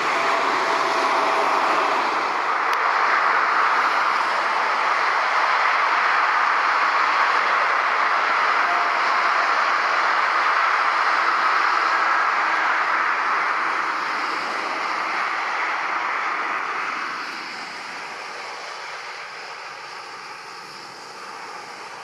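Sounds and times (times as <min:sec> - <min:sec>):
jet engines rushing: 0:00.0 - 0:22.0.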